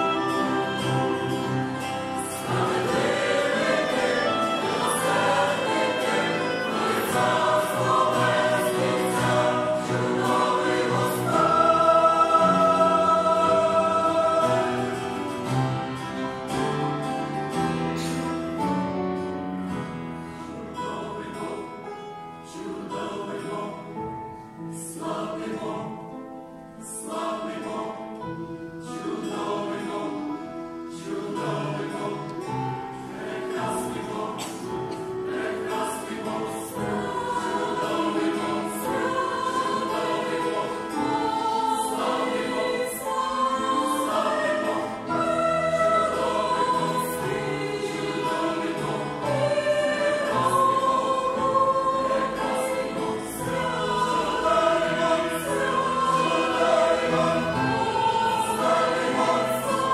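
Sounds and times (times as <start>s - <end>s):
clarinet: 0.0s - 10.8s, 28.3s - 37.4s
acoustic guitar: 0.0s - 59.9s
choir singing a hymn: 0.0s - 59.9s.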